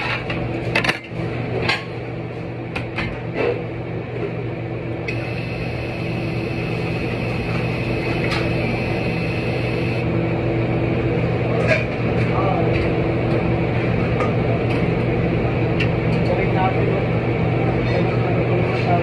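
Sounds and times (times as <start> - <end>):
steady machine hum: 4.5 - 12.2
steady hiss: 5.2 - 10.0.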